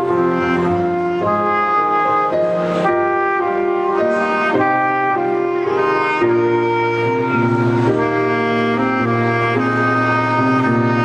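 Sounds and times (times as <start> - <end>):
backing music with bass line: 0.0 - 11.0
saxophone melody: 0.0 - 11.0.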